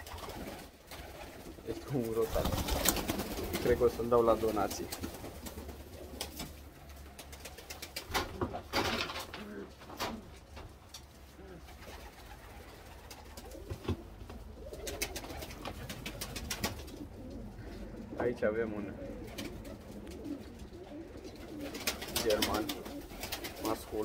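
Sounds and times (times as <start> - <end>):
rustle: 0.0 - 18.2
pigeons cooing: 0.0 - 24.0.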